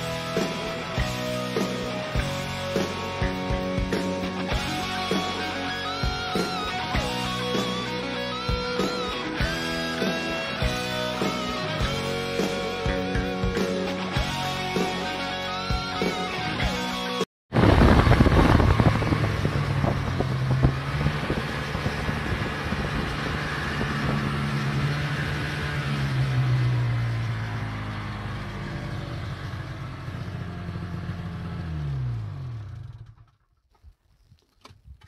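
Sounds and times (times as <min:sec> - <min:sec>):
snowmobile engine running: 0:17.6 - 0:33.1.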